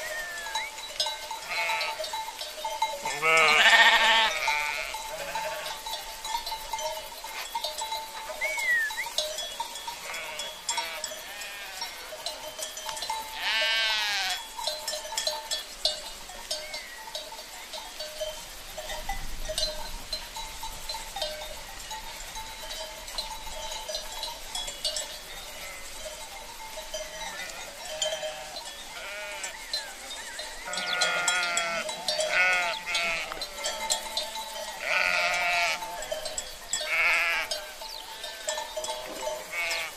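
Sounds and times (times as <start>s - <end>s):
sheep and lambs bleating: 0.0s - 6.0s, 9.8s - 12.6s, 13.3s - 14.5s, 24.7s - 26.3s, 26.9s - 39.9s.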